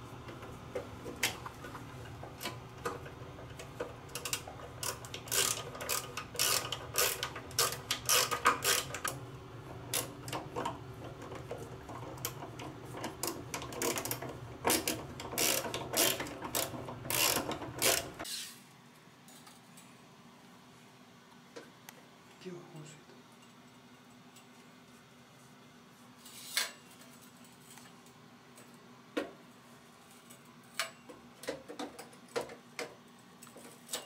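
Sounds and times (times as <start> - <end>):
screwdriver clicking and scraping: 4.2 - 9.2, 13.0 - 18.6.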